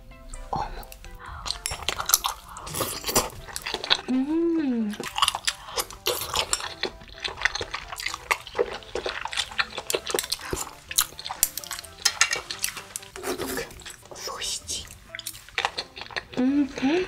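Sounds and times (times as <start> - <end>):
chopsticks tapping a frying pan: 9.9 - 13.2.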